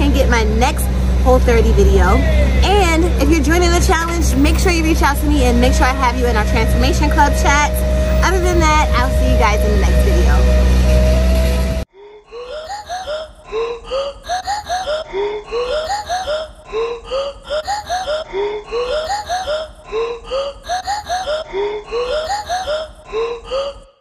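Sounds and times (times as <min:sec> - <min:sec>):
background music loop: 0:00.0 - 0:11.9.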